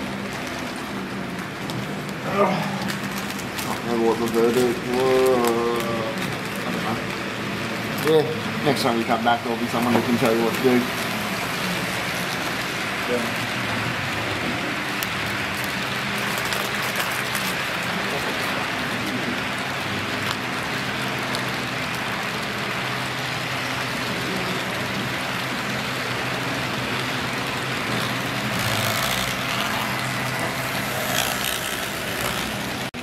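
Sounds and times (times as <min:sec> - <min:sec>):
model train wheels rattling on rail: 0:14.9 - 0:32.9.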